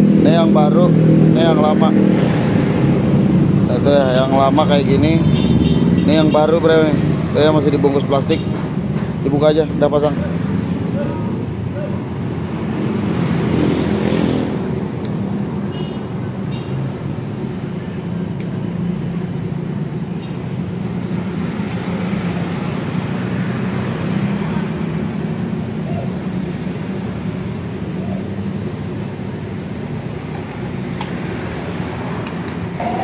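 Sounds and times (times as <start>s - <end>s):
road traffic hum: 0.0s - 33.0s.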